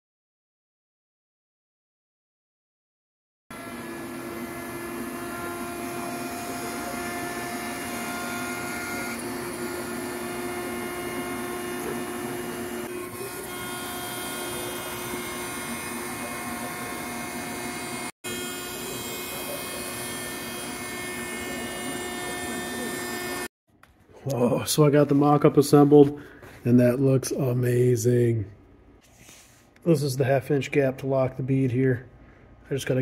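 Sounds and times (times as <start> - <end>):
cnc router spindle whine: 3.5 - 23.5.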